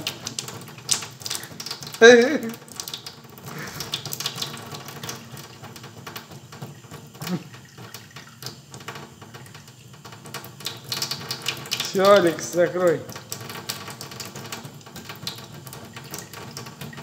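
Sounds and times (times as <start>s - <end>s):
cat lapping water: 0.0s - 17.0s
water running into a steel sink: 0.0s - 17.0s.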